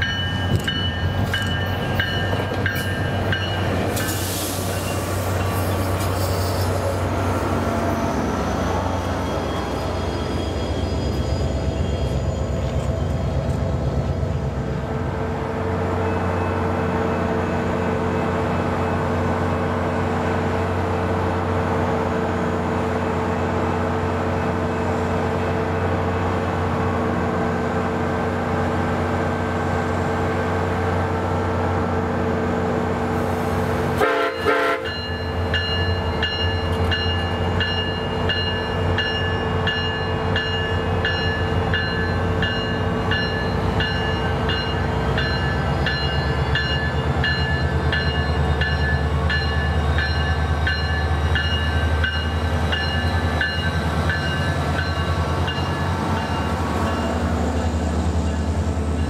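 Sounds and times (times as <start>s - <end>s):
locomotive bell ringing: 0.0s - 5.7s, 34.3s - 59.0s
train horn: 34.0s - 35.1s.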